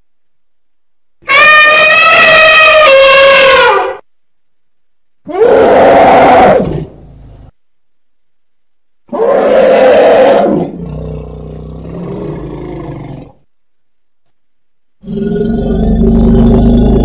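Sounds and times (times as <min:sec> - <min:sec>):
elephant roaring: 0:05.3 - 0:07.1, 0:09.1 - 0:13.4, 0:15.0 - 0:17.0.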